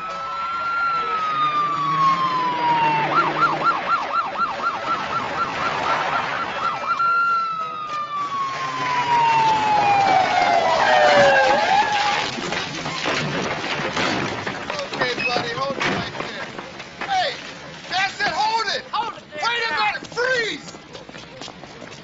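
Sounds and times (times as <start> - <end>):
police siren wailing and yelping: 0.0 - 12.3.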